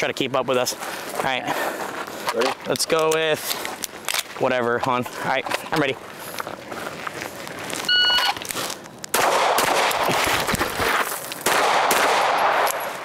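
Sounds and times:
rustle and thud of movement: 0:00.0 - 0:09.0, 0:09.9 - 0:11.5
shot timer beep: 0:07.9 - 0:08.4
pistol shots: 0:09.1 - 0:10.2, 0:11.4 - 0:13.0.

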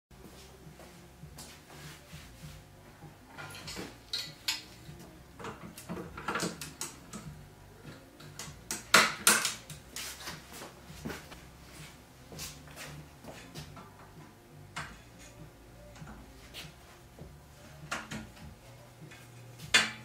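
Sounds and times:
metal tubes clinking: 0:03.3 - 0:04.9.

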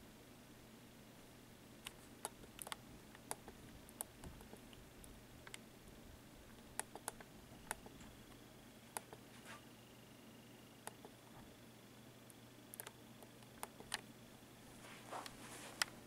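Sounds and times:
faint sharp clicks and ticks: 0:01.8 - 0:05.6, 0:10.8 - 0:11.4, 0:12.2 - 0:14.1.

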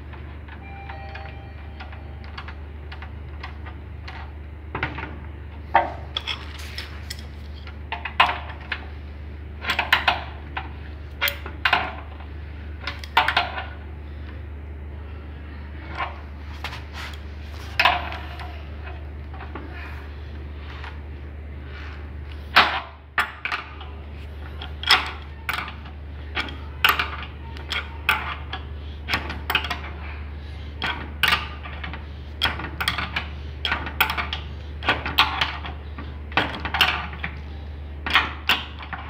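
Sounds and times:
steady low hum: 0:00.0 - 0:39.0.

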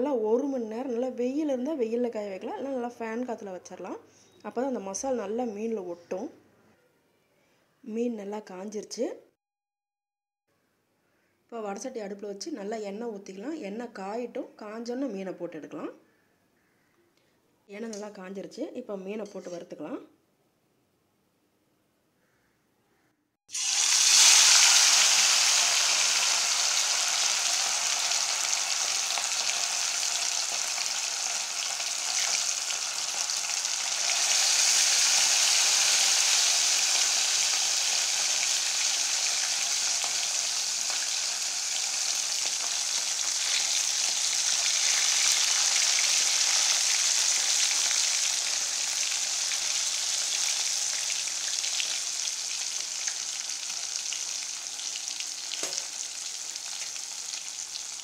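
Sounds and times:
fish deep-frying in hot oil: 0:23.5 - 0:58.0.

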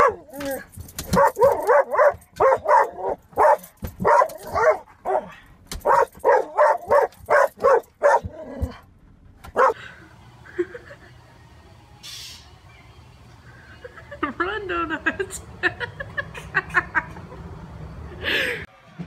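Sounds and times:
small dog barking: 0:01.1 - 0:08.7, 0:09.6 - 0:09.8.

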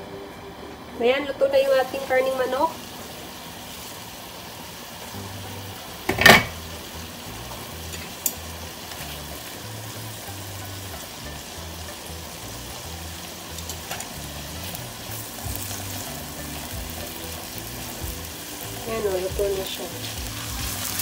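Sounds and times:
meat sizzling in a frying pan: 0:01.6 - 0:21.0
background music with bass line: 0:06.5 - 0:21.0.

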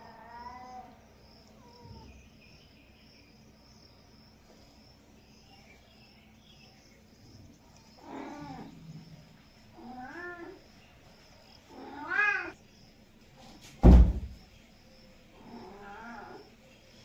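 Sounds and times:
cat meowing: 0:09.8 - 0:10.6, 0:11.7 - 0:12.6, 0:15.4 - 0:16.4.

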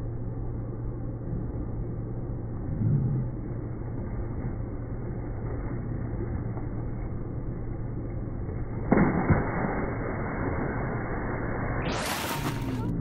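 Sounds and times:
thump and splash: 0:08.8 - 0:10.1, 0:11.9 - 0:12.8.

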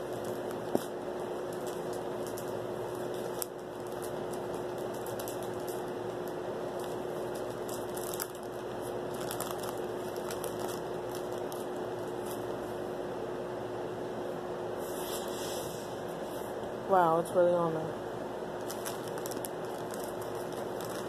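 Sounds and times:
plastic mailer bag crinkling: 0:00.0 - 0:12.6, 0:18.6 - 0:21.0
steady hum: 0:00.0 - 0:21.0.

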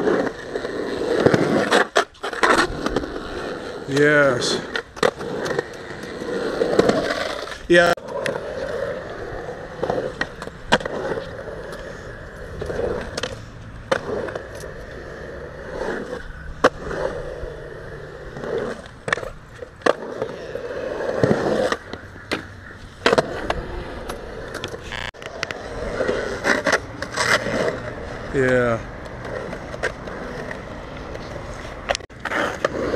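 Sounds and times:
skateboard wheels rolling on concrete: 0:00.0 - 0:32.9.

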